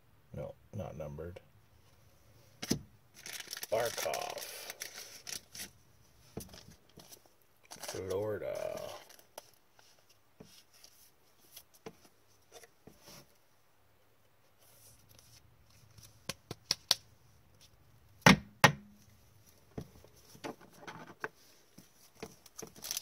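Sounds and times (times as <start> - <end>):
sharp plastic knocks: 18.2 - 19.0.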